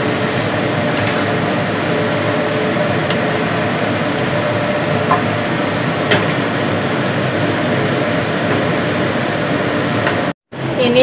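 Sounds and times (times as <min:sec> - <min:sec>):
wooden spatula stirring meat in wok: 0:00.0 - 0:06.6.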